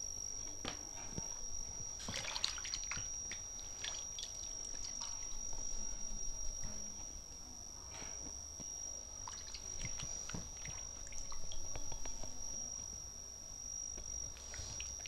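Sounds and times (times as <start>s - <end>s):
water splashes and drips: 2.0s - 5.6s, 9.2s - 11.9s.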